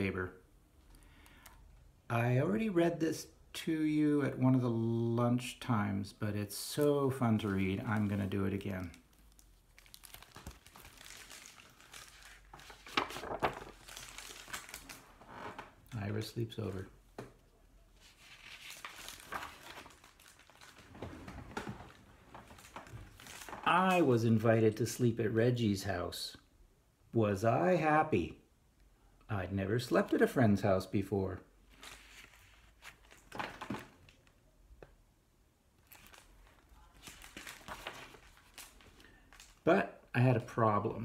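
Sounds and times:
book pages rustling: 7.5 - 15.7, 18.0 - 24.1, 31.7 - 34.3, 35.8 - 39.6.

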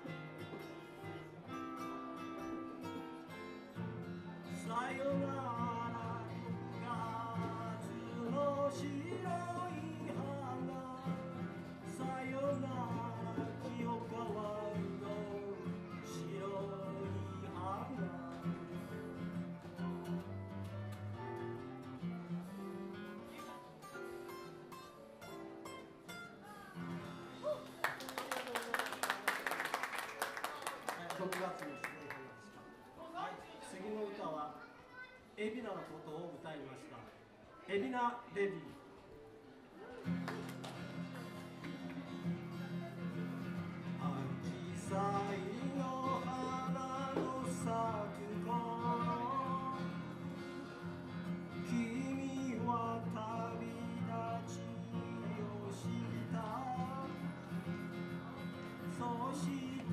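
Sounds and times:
acoustic guitar: 0.0 - 29.3, 38.3 - 59.9
audience applause: 27.5 - 32.3, 40.0 - 42.2.

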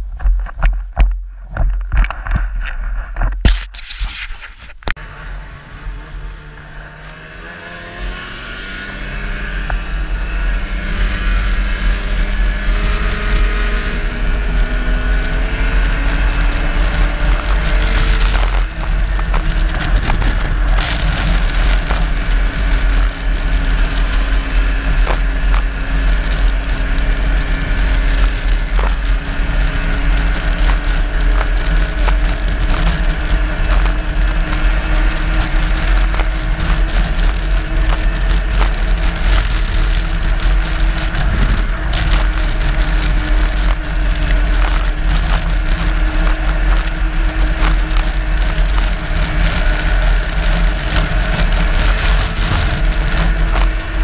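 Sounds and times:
wind rumble on microphone: 0.0 - 54.0
race car engine running: 5.0 - 54.0.

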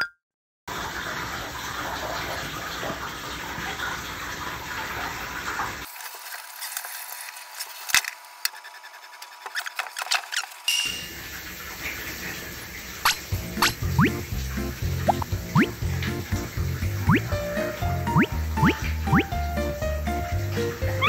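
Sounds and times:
shower water running: 0.7 - 21.0
water dripping: 10.7 - 21.0.

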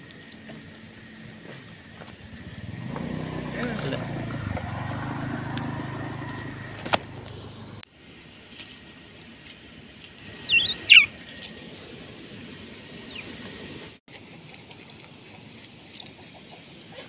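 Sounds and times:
otter squeaking chirps: 10.2 - 11.1, 13.0 - 13.4.

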